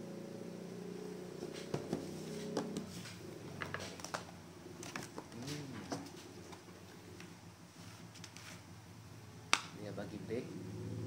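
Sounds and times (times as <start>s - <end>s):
steady low hum: 0.0s - 11.0s
taps and knocks on cardboard box: 1.4s - 2.9s.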